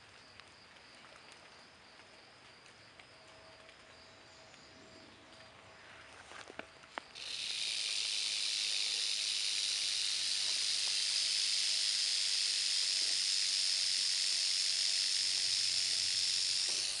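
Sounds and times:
rattlesnake rattling: 0:07.0 - 0:17.0.

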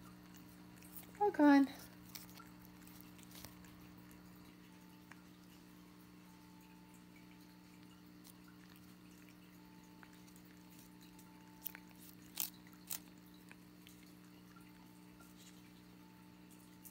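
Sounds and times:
faint steady hum: 0:00.0 - 0:16.9
sharp licking smacks: 0:01.8 - 0:05.8.

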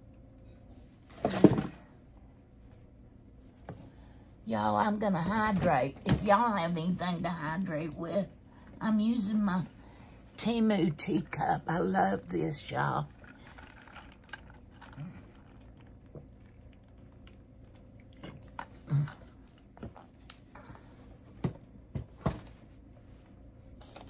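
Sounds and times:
person swallowing: 0:18.1 - 0:20.0.

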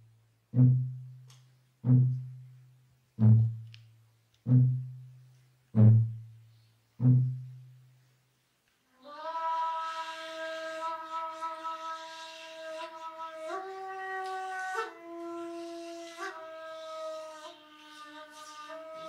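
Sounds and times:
deep drum strokes: 0:01.8 - 0:02.3, 0:03.2 - 0:03.7
reed flute: 0:09.0 - 0:19.0.

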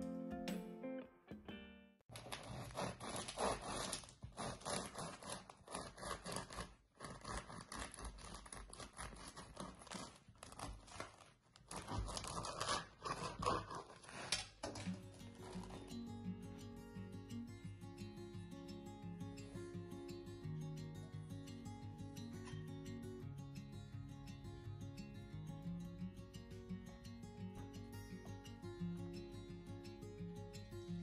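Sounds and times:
bread knife sawing crusty bread: 0:02.1 - 0:15.9.

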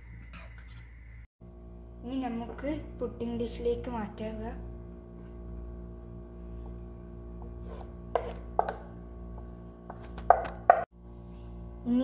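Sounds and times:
steady low hum: 0:00.0 - 0:12.0
spatula knocking on pan: 0:08.1 - 0:08.9, 0:10.2 - 0:10.9.

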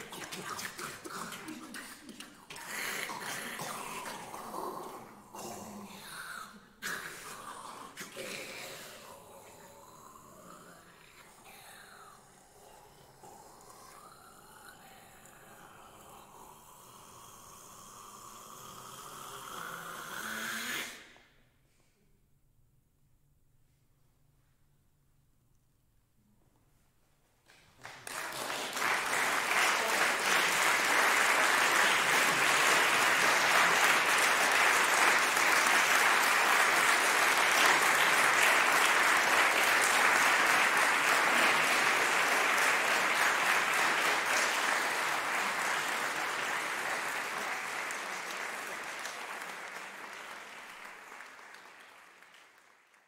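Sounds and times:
audience applause: 0:00.0 - 0:04.9, 0:27.5 - 0:53.0.

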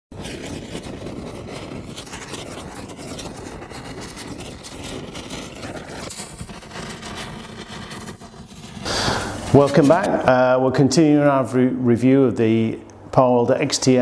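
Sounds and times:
rumbling crackling sound effect: 0:00.1 - 0:11.2.

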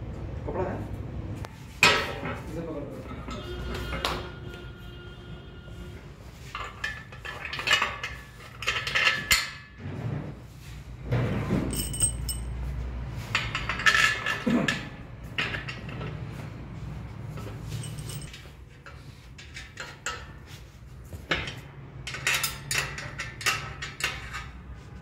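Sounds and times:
steel parts clinking and clattering: 0:06.4 - 0:09.8, 0:11.4 - 0:16.4, 0:17.2 - 0:20.5, 0:21.3 - 0:24.8
metallic ring: 0:11.6 - 0:12.7, 0:17.4 - 0:18.4.

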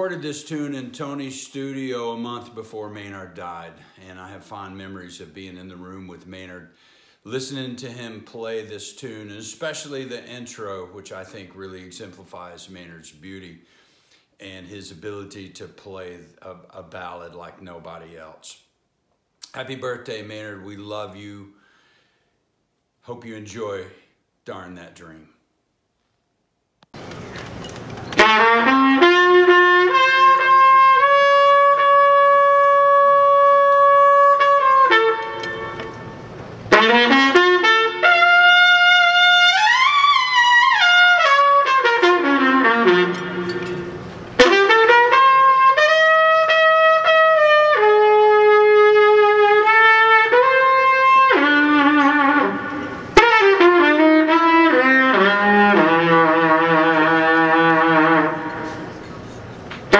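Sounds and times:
trumpet playing slow jazz ballad: 0:28.0 - 0:59.9.

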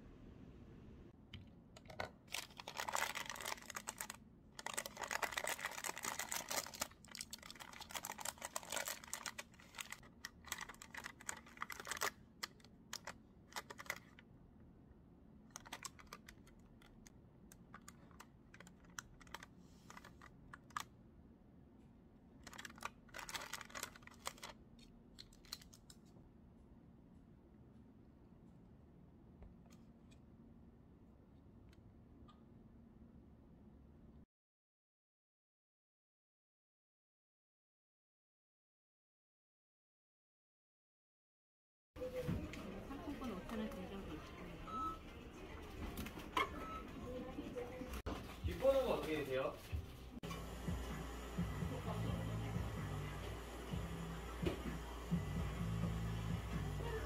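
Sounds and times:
plastic wrapper crinkling: 0:02.2 - 0:14.2, 0:15.6 - 0:17.0, 0:17.6 - 0:20.9, 0:22.4 - 0:24.6, 0:25.2 - 0:26.0.

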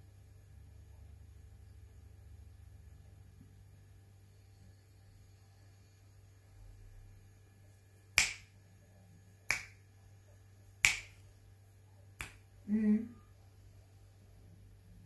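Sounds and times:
finger snaps: 0:08.2 - 0:08.5, 0:09.5 - 0:09.8, 0:10.8 - 0:11.2, 0:12.2 - 0:12.4.

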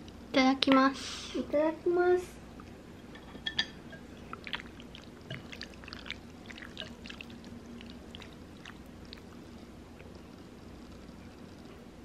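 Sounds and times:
chopsticks stirring thick sauce: 0:04.0 - 0:09.5.

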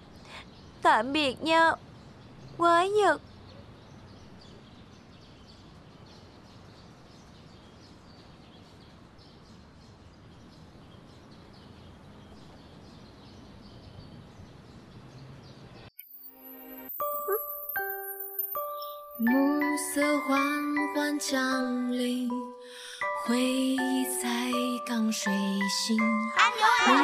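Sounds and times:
small birds chirping: 0:00.0 - 0:16.2, 0:17.0 - 0:27.0
faint outdoor background noise: 0:00.0 - 0:27.0
chiming music: 0:16.0 - 0:27.0.

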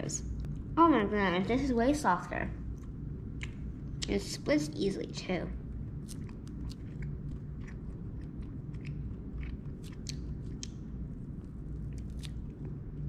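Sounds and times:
jerky being chewed and pulled apart: 0:06.0 - 0:13.0.

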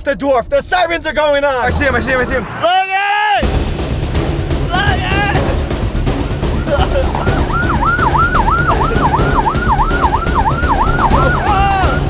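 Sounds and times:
low rumble: 0:00.4 - 0:02.8
siren yelping: 0:06.6 - 0:12.0.

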